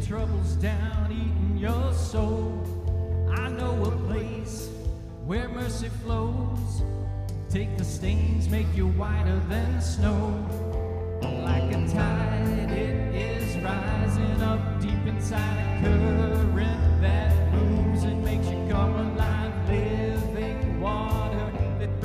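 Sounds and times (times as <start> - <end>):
man singing lead vocal: 0.0 - 22.0
worship band playing: 7.5 - 22.0.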